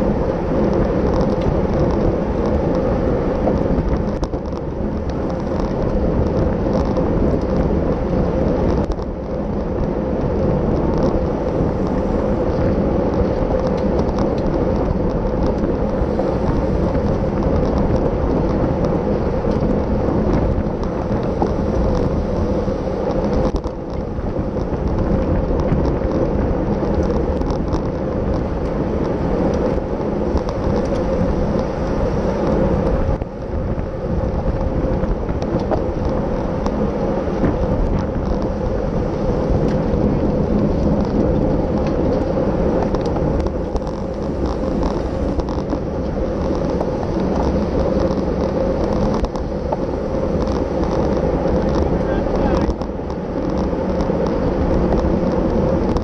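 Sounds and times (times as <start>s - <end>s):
tyre and road noise: 0.0s - 56.0s
wind buffeting microphone: 0.0s - 56.0s
faint ticks: 39.4s - 56.0s.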